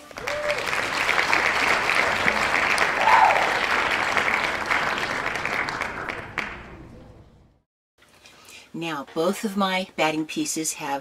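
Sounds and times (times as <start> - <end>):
audience applause: 0.0 - 6.9.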